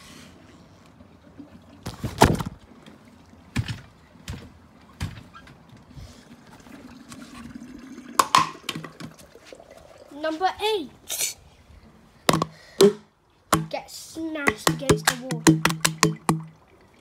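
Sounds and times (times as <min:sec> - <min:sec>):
sharp knocks and thuds: 0:03.5 - 0:05.4, 0:12.3 - 0:13.8, 0:14.4 - 0:16.5.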